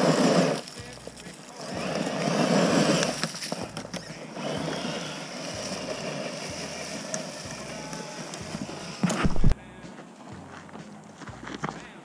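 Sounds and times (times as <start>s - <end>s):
electric motor and gears whirring: 0.0s - 9.6s.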